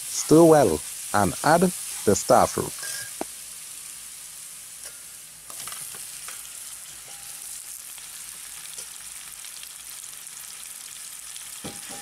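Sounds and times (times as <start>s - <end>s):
fruit sizzling in hot oil: 0.0s - 12.0s
metal spoon knocking on pan: 11.6s - 12.0s.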